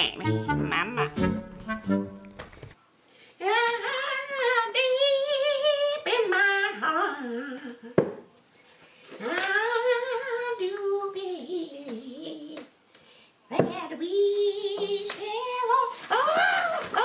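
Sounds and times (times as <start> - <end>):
high wavering wordless voice: 0.0 - 1.2.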